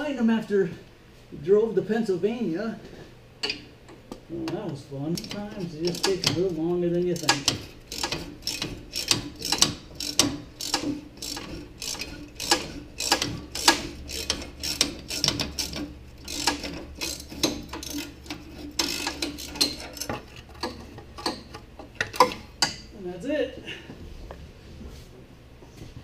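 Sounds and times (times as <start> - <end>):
hand ratchet clicking: 5.2 - 22.8.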